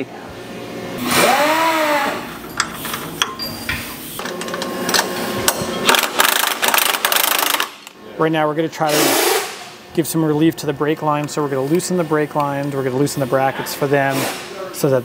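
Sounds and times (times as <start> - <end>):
power wrench running: 1.0 - 7.9.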